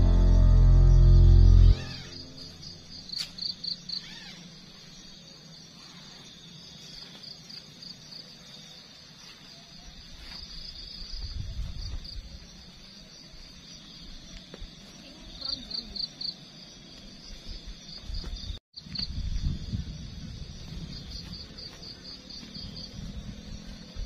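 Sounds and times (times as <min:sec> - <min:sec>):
low rumble: 0:00.0 - 0:03.0
insects chirping: 0:00.0 - 0:24.0.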